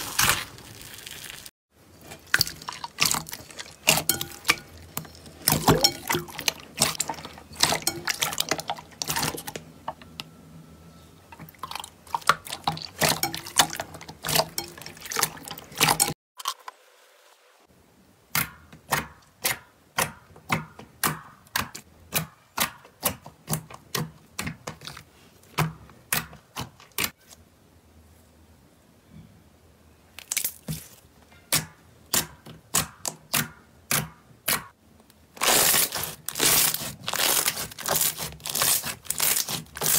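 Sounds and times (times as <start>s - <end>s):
hands squishing slime: 35.4s - 39.9s.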